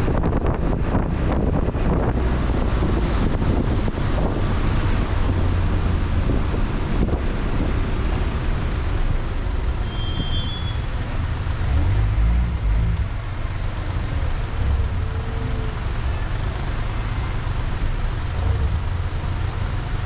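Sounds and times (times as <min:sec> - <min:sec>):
road traffic rumble: 0:00.0 - 0:20.0
short high squeal: 0:09.8 - 0:10.9.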